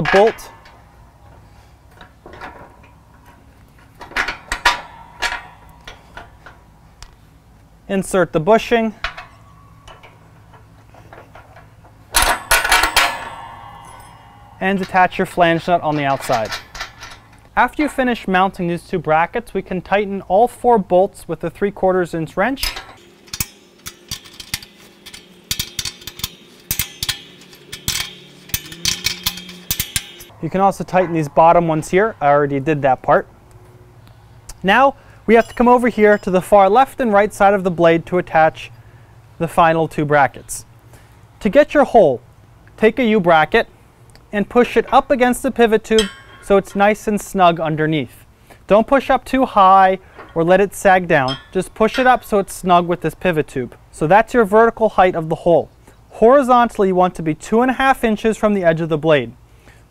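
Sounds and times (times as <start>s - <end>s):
metal bolt clinking on brackets: 0.0s - 18.6s, 21.6s - 33.6s, 34.5s - 38.7s, 44.2s - 54.8s
ratchet wrench clicking: 22.7s - 30.3s.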